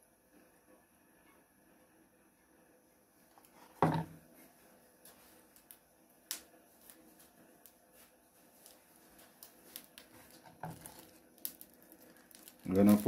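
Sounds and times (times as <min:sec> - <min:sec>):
oil crackling in a frying pan: 0:08.6 - 0:13.0.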